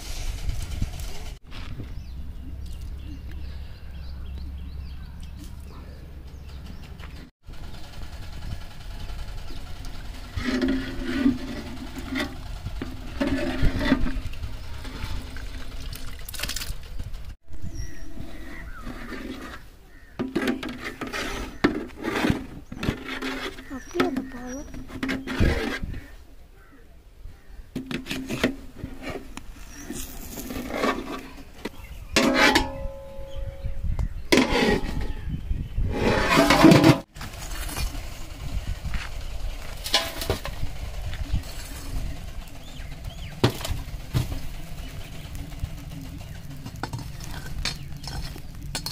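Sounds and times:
metal ladle scraping pot: 0:10.3 - 0:15.7, 0:18.1 - 0:26.1, 0:27.8 - 0:37.1, 0:46.6 - 0:48.9.

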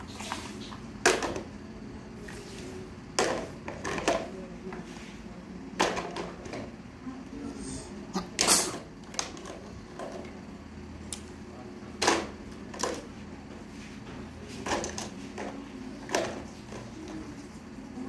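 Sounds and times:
plastic toys knocking and clacking: 0:01.0 - 0:01.5, 0:03.2 - 0:04.4, 0:05.8 - 0:06.7, 0:09.0 - 0:10.3, 0:12.0 - 0:13.1, 0:14.6 - 0:17.2.

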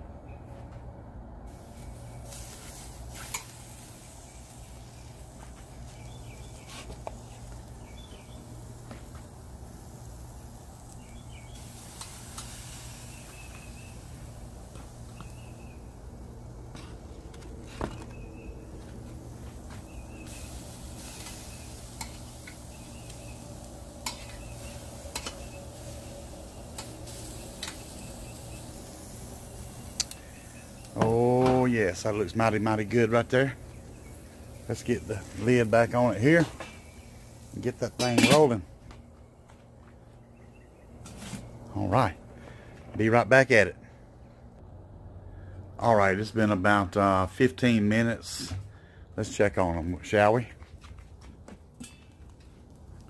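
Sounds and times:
faint sizzle: 0:01.5 - 0:38.7
metal clinks against grill grate: 0:51.8 - 0:52.3.

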